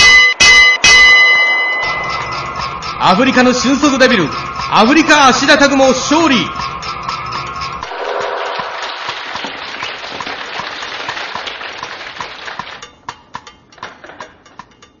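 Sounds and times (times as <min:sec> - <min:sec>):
applause: 0:07.9 - 0:12.9.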